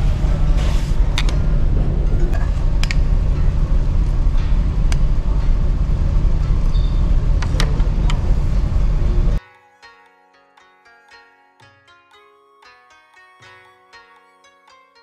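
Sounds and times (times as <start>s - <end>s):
low engine rumble: 0.0s - 9.4s.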